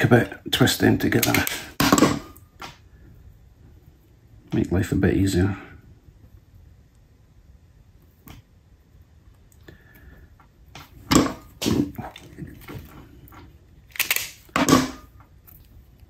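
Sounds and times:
wire cutters snapping: 0:13.9 - 0:14.7.

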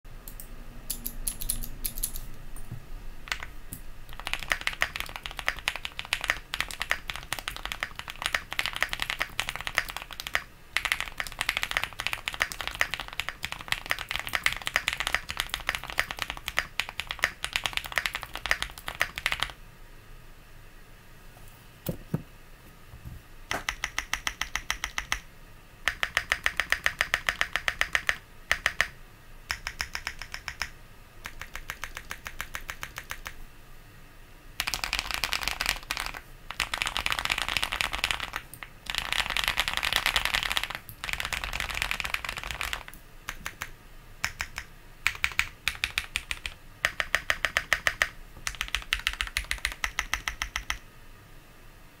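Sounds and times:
fast typing on mechanical keyboard: 0:03.3 - 0:03.5, 0:04.1 - 0:19.6, 0:23.5 - 0:25.3, 0:25.9 - 0:33.4, 0:34.6 - 0:50.8.

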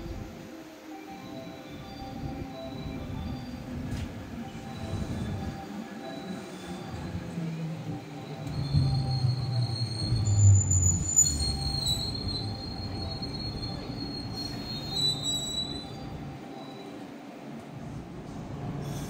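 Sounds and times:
train wheels rumbling on rails: 0:02.1 - 0:19.0.

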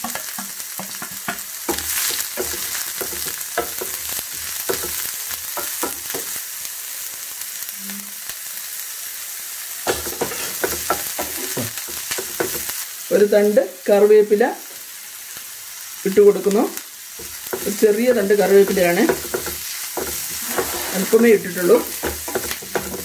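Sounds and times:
onions sizzling in oil: 0:00.0 - 0:23.0
spatula scraping a pan: 0:09.9 - 0:12.5, 0:17.2 - 0:23.0.

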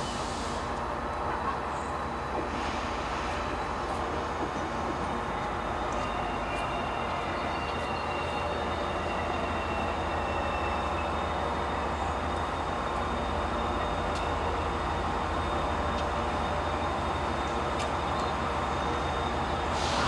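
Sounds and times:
diesel locomotive engine drone: 0:00.0 - 0:20.0.

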